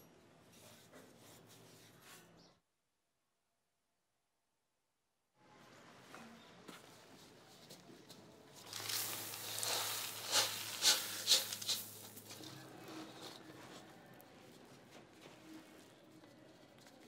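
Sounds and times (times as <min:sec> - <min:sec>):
gravel clattering onto concrete: 0:08.6 - 0:13.8.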